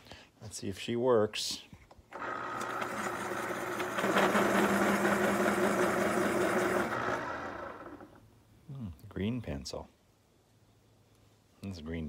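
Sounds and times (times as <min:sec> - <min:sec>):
electric pencil sharpener motor: 0:02.1 - 0:08.2
cutter grinding pencil: 0:02.2 - 0:07.5.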